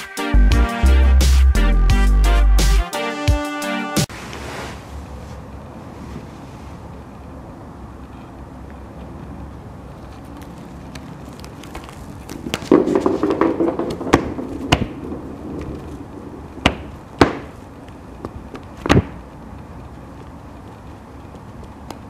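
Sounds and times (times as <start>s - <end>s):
ball rolling on a woven mat: 10.1s - 17.6s
ball knocking against things: 12.4s - 15.9s.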